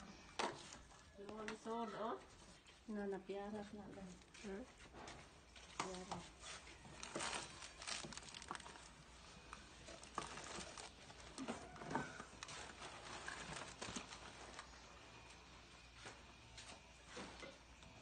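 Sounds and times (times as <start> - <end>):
plastic rustling: 5.6 - 14.8
hands rummaging through box: 6.9 - 9.0, 9.8 - 14.7.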